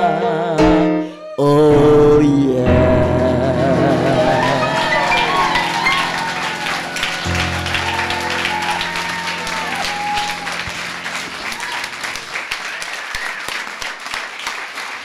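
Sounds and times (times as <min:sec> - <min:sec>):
keyboard held chord: 0:01.7 - 0:12.4
audience applause: 0:03.1 - 0:15.0
voices calling out: 0:03.8 - 0:13.4.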